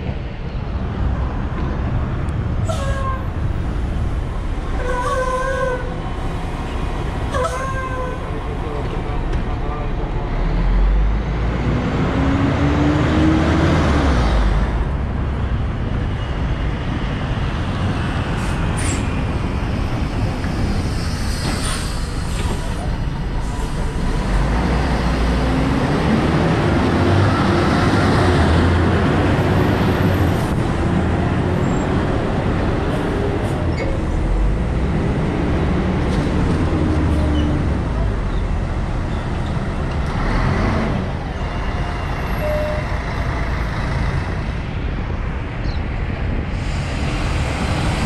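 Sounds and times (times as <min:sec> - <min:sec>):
bus engine: 0:00.0 - 0:48.0
air brakes hissing: 0:20.8 - 0:23.9.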